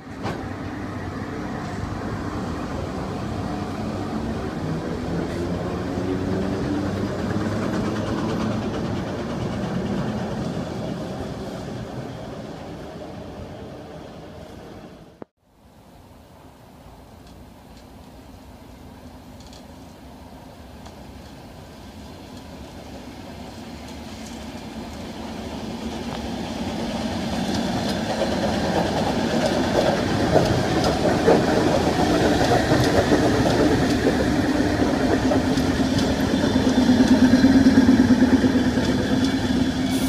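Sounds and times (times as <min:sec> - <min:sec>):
electric train rumble: 0:00.0 - 0:15.2, 0:16.4 - 0:40.0
clacks over rail joints: 0:06.7 - 0:10.6, 0:27.2 - 0:39.7.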